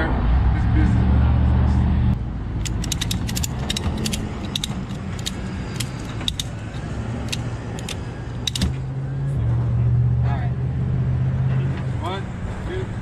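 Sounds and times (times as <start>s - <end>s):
ratchet strap clicking: 2.6s - 8.8s.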